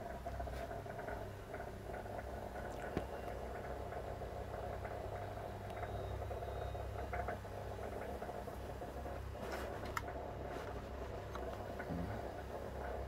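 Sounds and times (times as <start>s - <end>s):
steady hum: 0.0s - 13.0s
water ticking and crackling: 0.0s - 13.0s.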